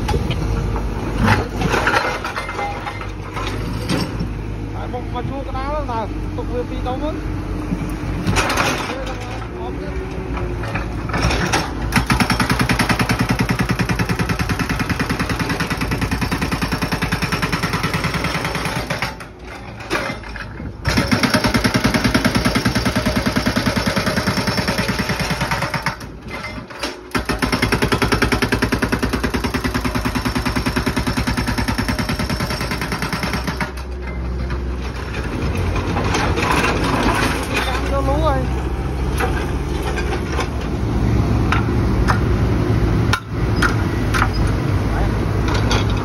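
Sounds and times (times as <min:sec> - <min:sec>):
hydraulic breaker hammering concrete: 0:11.3 - 0:19.4, 0:20.8 - 0:26.1, 0:27.1 - 0:33.9.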